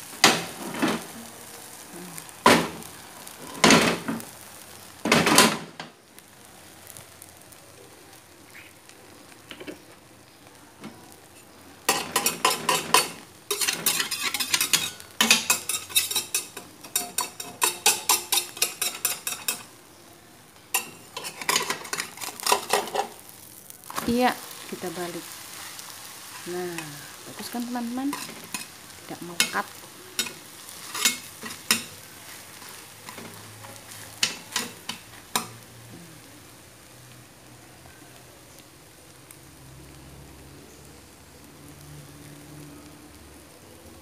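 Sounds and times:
faint sizzling: 0:00.0 - 0:44.0
spatula scraping pan: 0:11.4 - 0:19.7, 0:20.7 - 0:23.2, 0:27.5 - 0:35.6
spatula clattering on frying pan: 0:11.9 - 0:19.7, 0:20.7 - 0:23.2, 0:28.1 - 0:28.7, 0:29.4 - 0:29.6, 0:30.2 - 0:32.0, 0:32.6 - 0:35.6.

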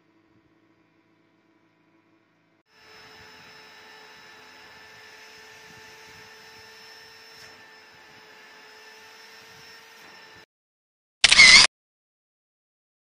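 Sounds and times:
small electric motor whining: 0:02.7 - 0:10.5, 0:11.2 - 0:11.7.

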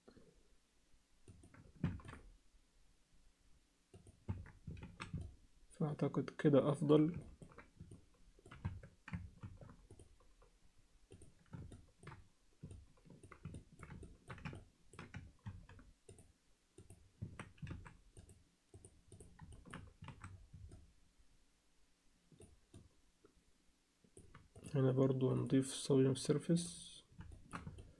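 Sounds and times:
mouse and keyboard clicking: 0:04.0 - 0:05.4, 0:07.0 - 0:10.5, 0:11.1 - 0:20.9, 0:27.0 - 0:27.9.

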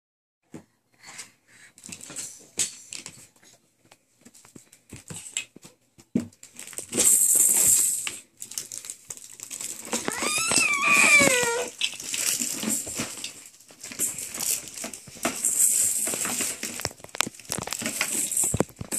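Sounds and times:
plastic toys clattering: 0:01.8 - 0:03.4, 0:04.6 - 0:18.9
young child crying: 0:10.1 - 0:11.7.

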